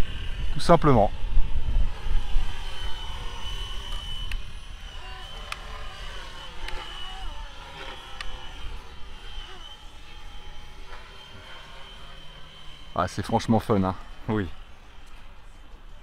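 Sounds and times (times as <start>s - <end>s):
wind rumble on microphone: 0.0s - 5.0s
rc helicopter rotor whine: 0.0s - 16.0s.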